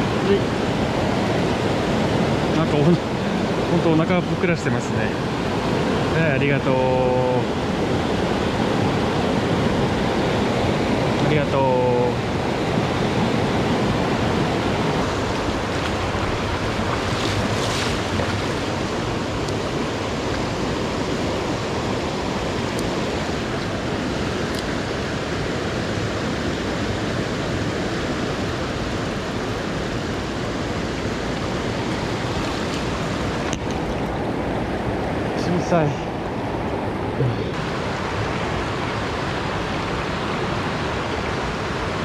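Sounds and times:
stream rushing over rocks: 0.0 - 42.0.

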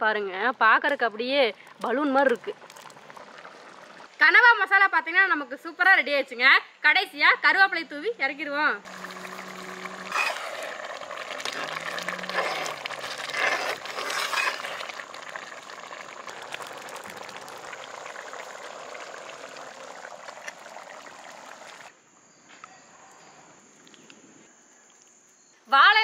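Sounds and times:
curry bubbling and sizzling in pot: 0.4 - 4.9, 8.8 - 21.9
ladle stirring and scraping: 0.9 - 4.1, 8.9 - 21.9.

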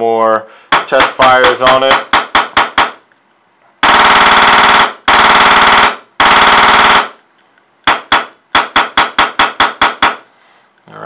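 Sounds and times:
air gun full-auto bursts: 0.7 - 3.0, 3.8 - 7.2, 7.9 - 10.3
air gun single shots: 7.8 - 10.3.

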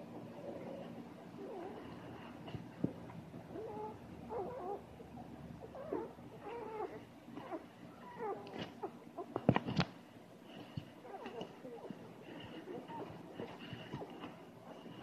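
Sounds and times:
puppies squeaking and whining: 3.5 - 9.5, 11.0 - 15.0.

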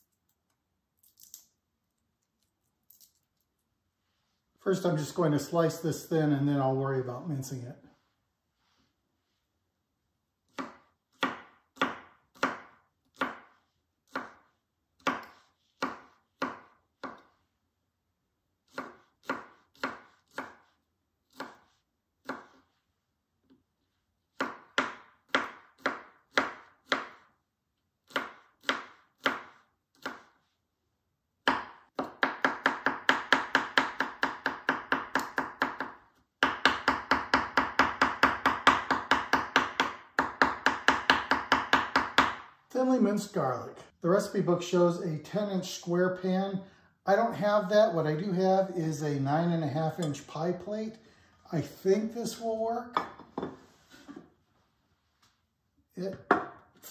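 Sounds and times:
fast continuous knife chopping: 10.5 - 17.3, 18.7 - 20.7, 21.3 - 21.6, 22.2 - 22.6, 24.4 - 27.3, 28.0 - 30.4, 31.4 - 42.5.

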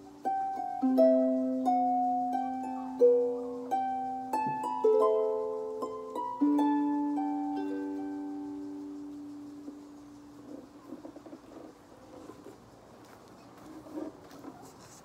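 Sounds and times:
harp melody: 0.0 - 10.8.

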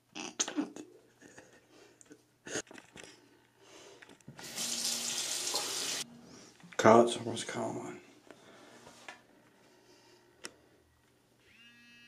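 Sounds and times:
tap water running: 4.4 - 6.0.

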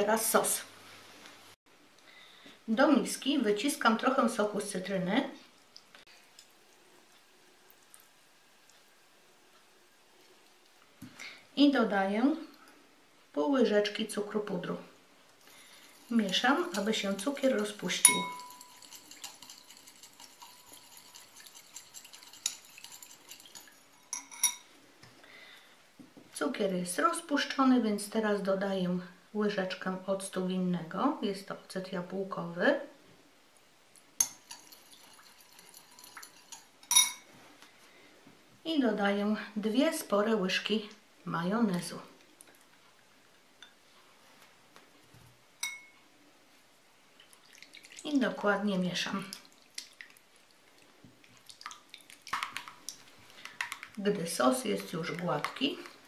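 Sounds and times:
spoon scraping glass bowl: 16.0 - 24.7, 34.2 - 37.3
glass dishes handled: 18.0 - 18.7, 24.1 - 24.6, 36.0 - 37.3, 45.6 - 46.0
spoon clinking on glass: 18.0 - 24.7, 34.2 - 37.3, 45.6 - 46.0.

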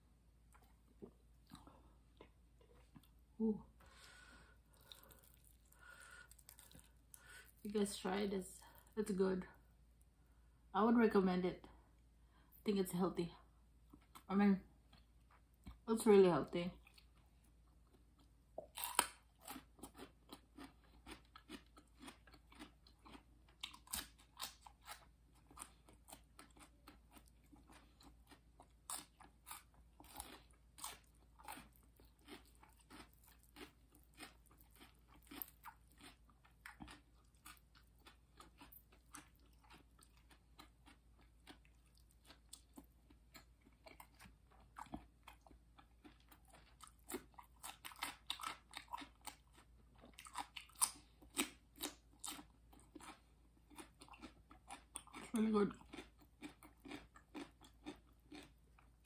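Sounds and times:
crunching raw vegetables: 4.6 - 8.0, 18.0 - 59.0.

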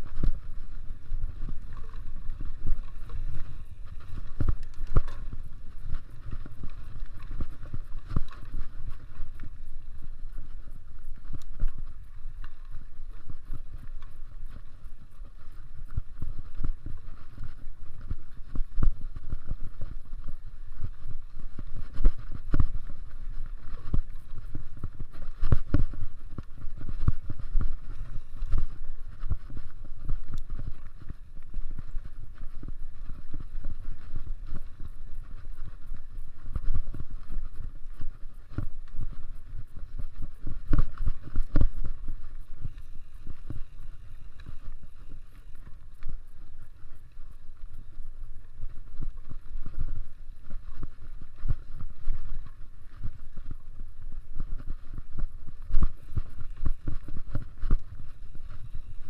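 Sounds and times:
bike tyres on dirt: 0.0 - 59.0
wind buffeting microphone: 0.0 - 59.0.

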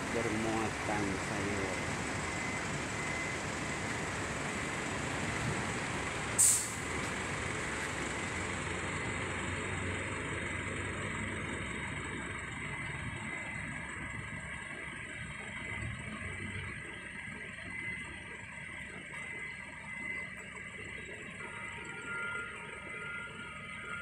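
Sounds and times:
vehicle engines rumbling: 0.0 - 24.0
sharp hiss of air: 6.4 - 6.8.

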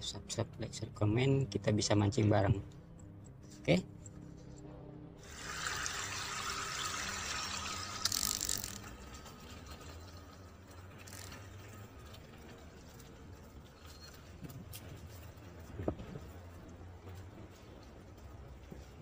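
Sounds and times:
water gushing through sluice gate: 5.2 - 8.1.

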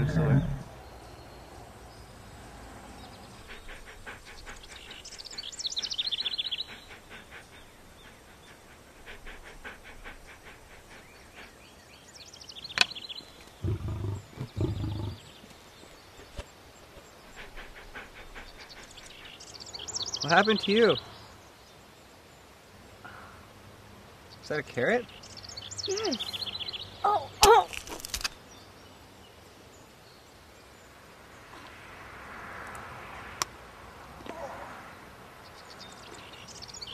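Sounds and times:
birds singing: 0.0 - 23.5, 24.2 - 27.4, 34.2 - 36.9.

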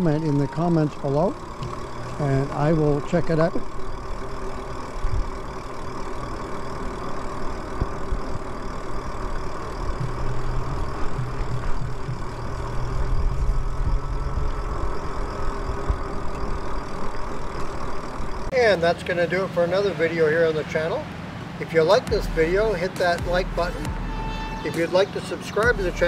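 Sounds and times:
electric motor hum: 0.0 - 18.5, 22.0 - 26.0.

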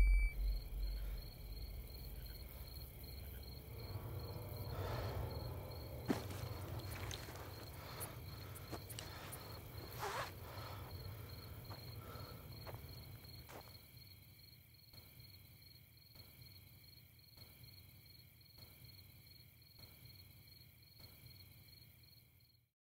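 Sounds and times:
low rumble: 0.0 - 9.3
crickets chirping: 0.0 - 22.6.

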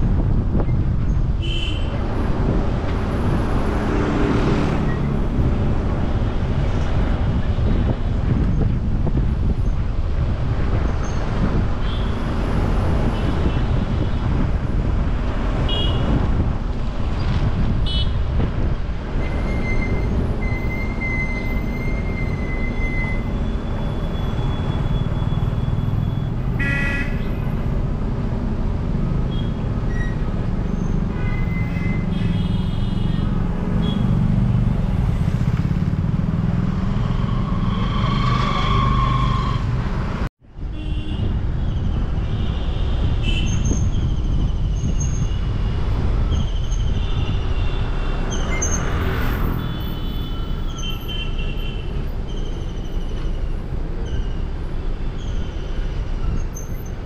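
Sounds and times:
vehicle horns tooting: 26.6 - 27.4.

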